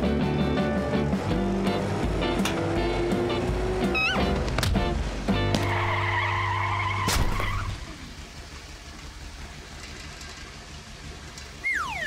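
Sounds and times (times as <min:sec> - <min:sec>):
car engine rumble: 0:00.0 - 0:12.0
tyre squeal: 0:03.9 - 0:04.3.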